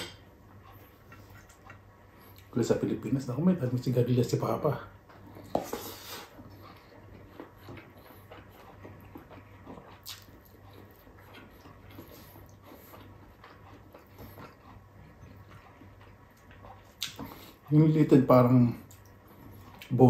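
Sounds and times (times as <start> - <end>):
faint low hum: 0.0 - 20.0
man chewing wet mouth smacks: 0.5 - 2.5, 5.0 - 17.7, 18.8 - 19.9.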